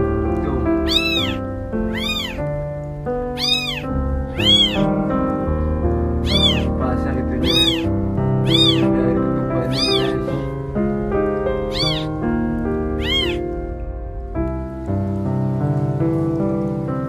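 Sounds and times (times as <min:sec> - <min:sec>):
background music sustained notes: 0:00.0 - 0:17.0
newborn kittens mewing: 0:00.6 - 0:02.5, 0:03.3 - 0:04.9, 0:06.2 - 0:06.8, 0:07.4 - 0:10.5, 0:11.6 - 0:12.2, 0:12.9 - 0:13.5.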